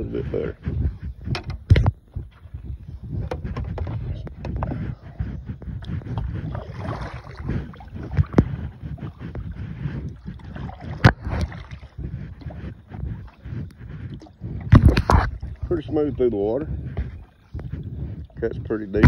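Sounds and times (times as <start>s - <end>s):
rumbling handling noise: 0.0s - 19.0s
paddle splashing in water: 5.8s - 13.5s, 14.1s - 15.9s.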